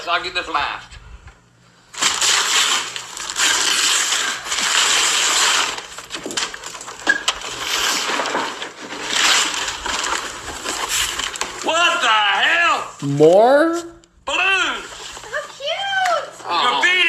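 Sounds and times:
wrapping paper ripping: 1.9 - 12.3.

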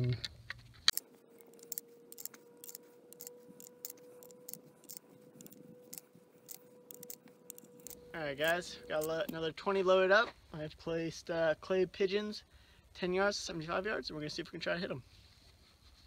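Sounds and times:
cartridges clicking into magazine: 0.9 - 9.3.

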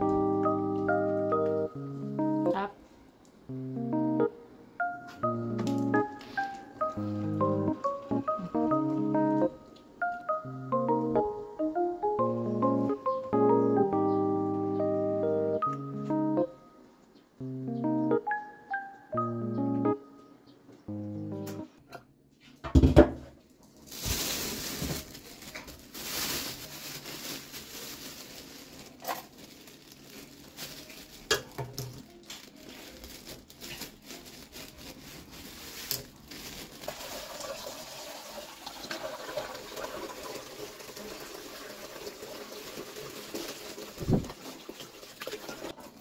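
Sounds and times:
plastic bag crinkling: 23.6 - 38.0
water running from tap: 36.9 - 46.0.

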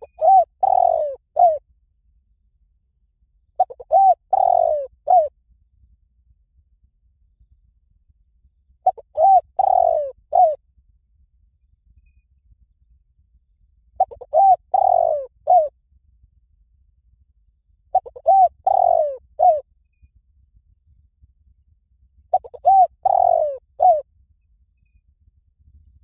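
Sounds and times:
dove cooing: 0.0 - 1.6, 3.6 - 5.3, 8.8 - 10.6, 14.0 - 15.7, 18.0 - 19.6, 22.3 - 24.0.

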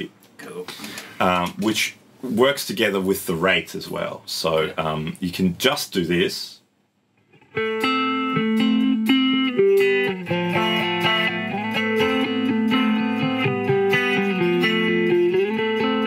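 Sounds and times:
electric guitar with chorus effect: 7.2 - 16.0.

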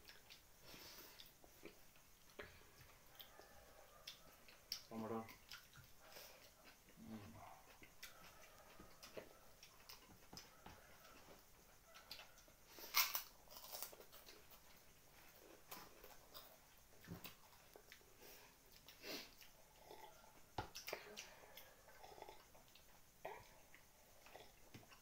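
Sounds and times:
chewing and mouth noises: 0.0 - 25.0.

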